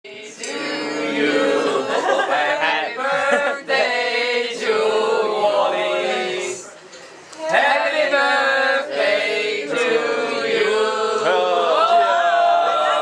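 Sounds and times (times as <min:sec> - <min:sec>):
group chanting in held voices: 0:00.1 - 0:06.6, 0:07.4 - 0:13.0.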